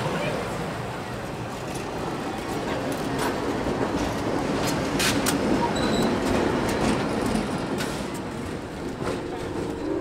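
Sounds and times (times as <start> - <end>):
train cars rumbling past: 0.0 - 10.0
wheels clicking over rail joints: 1.3 - 10.0.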